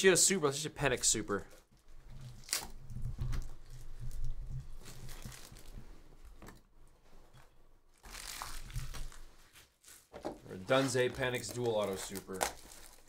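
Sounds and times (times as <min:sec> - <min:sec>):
cardboard boxes rustling: 0:08.4 - 0:13.0.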